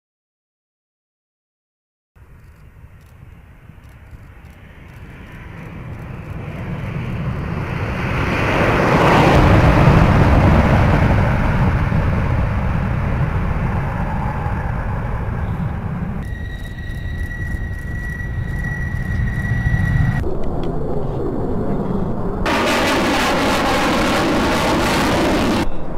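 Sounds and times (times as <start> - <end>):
jet engines at full afterburner: 2.2 - 25.9
high whine: 9.2 - 25.9.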